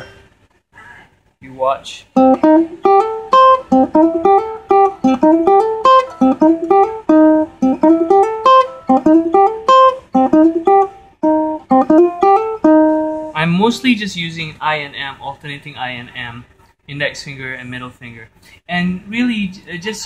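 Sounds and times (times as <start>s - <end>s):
ukulele blues riff plucked: 2.2s - 13.6s.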